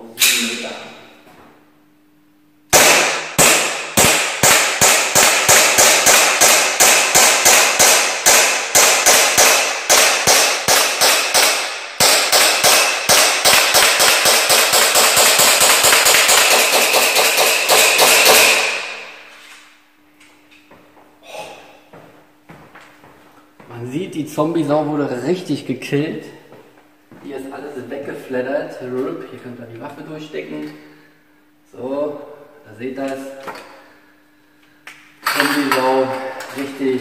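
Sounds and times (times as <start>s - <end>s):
airsoft pistol shots: 2.7s - 19.1s.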